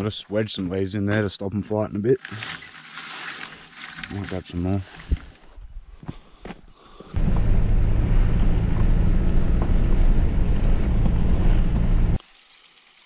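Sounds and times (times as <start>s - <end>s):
vehicle engine and road noise: 7.1s - 12.2s.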